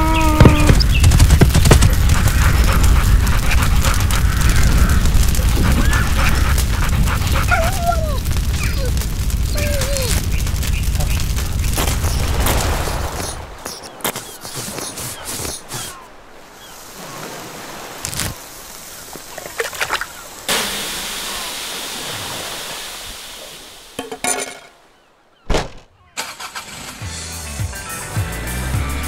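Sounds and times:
water hissing on hot charcoal: 1.9s - 13.8s, 17.6s - 24.0s
sharp thud: 25.5s - 25.9s
car engine starting: 26.2s - 27.4s.

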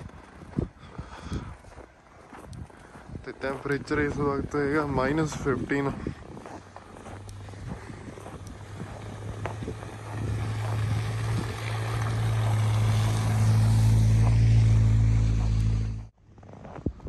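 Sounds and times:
footsteps crunching in snow: 0.0s - 17.0s
tyres on snow: 0.0s - 17.0s
car engine hum: 6.5s - 16.2s.

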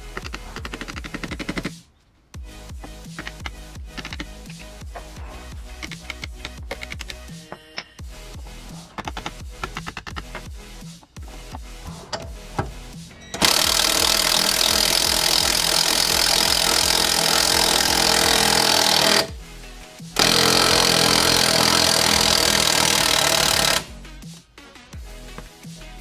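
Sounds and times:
impact wrench running: 13.3s - 19.4s, 20.2s - 23.9s.

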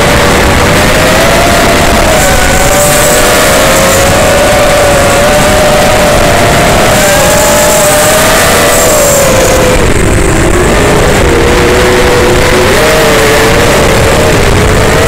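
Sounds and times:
drone motors whining: 0.0s - 15.0s
motor and wind rumble: 0.0s - 15.0s.

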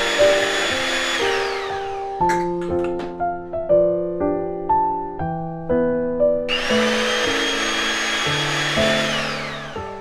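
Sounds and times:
electric hand mixer whining: 0.0s - 2.4s, 6.5s - 10.0s
piano background music: 0.0s - 10.0s.

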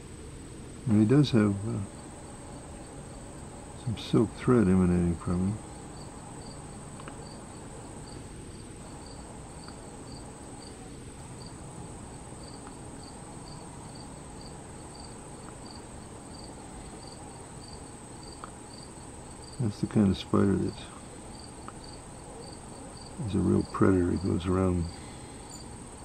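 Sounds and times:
insect chirping: 0.0s - 26.0s
insects buzzing: 0.0s - 26.0s.

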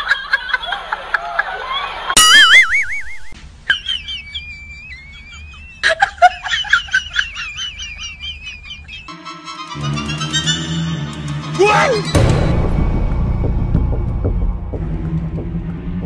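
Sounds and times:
bird-like whistling and chirps: 2.2s - 5.9s.

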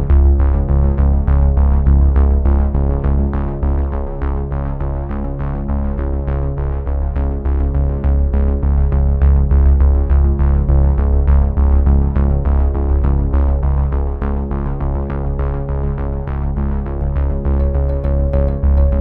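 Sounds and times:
synthesizer music with steady beat: 17.6s - 19.0s.

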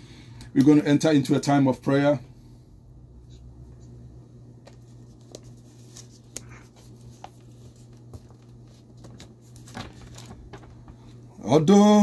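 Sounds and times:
faint clicks and rustles: 4.6s - 11.2s.

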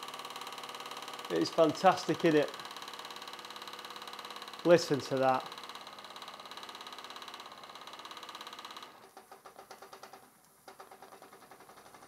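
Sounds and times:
model steam engine running: 0.0s - 9.1s.

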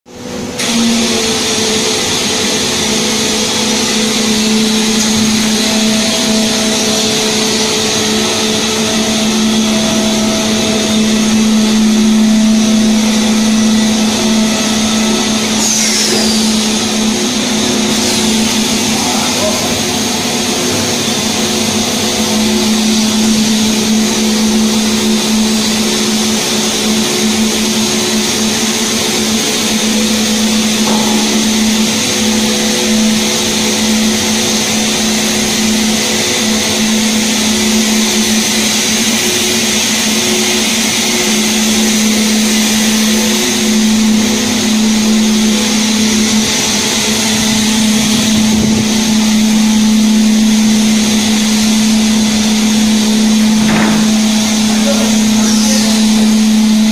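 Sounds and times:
cnc router machine hum: 0.1s - 56.9s
dust extraction hiss: 50.8s - 56.8s.

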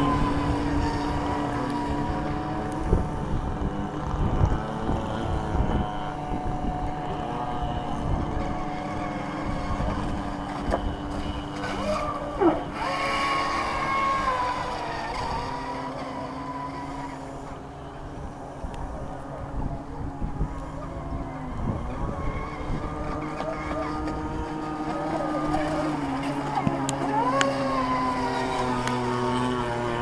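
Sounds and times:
model boat motors whining: 0.0s - 30.0s.

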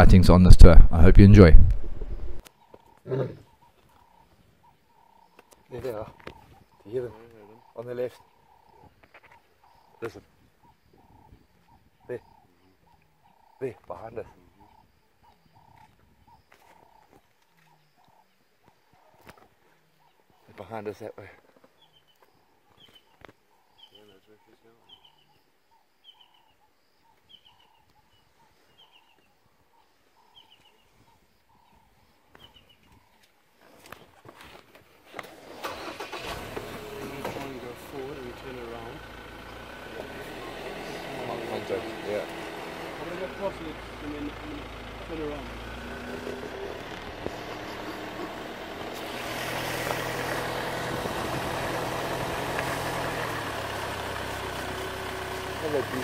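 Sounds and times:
vehicle rumble: 0.0s - 2.5s, 35.3s - 56.0s
bird calling: 2.3s - 20.6s, 21.6s - 34.1s, 37.1s - 49.2s
tyre and road noise: 33.7s - 56.0s.

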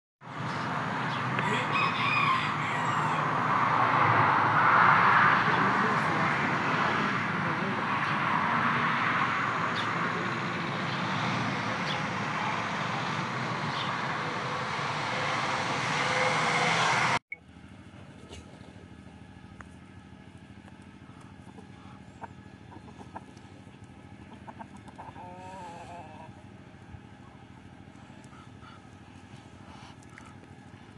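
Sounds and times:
loud steady rushing noise: 3.2s - 17.2s.

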